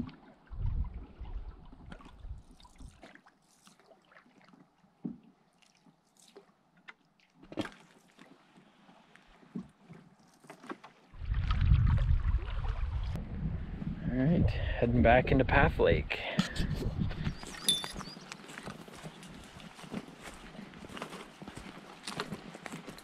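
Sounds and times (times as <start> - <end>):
wind rumble on microphone: 0.0 - 2.5, 11.2 - 18.2
water sloshing and dripping: 0.0 - 13.2.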